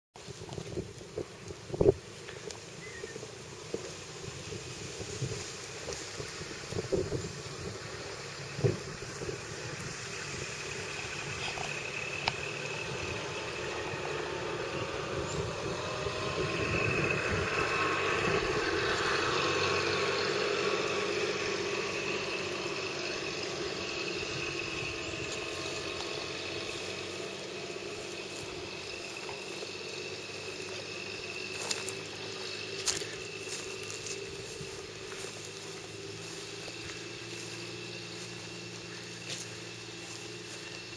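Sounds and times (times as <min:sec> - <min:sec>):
distant engine running: 0:00.2 - 0:40.9.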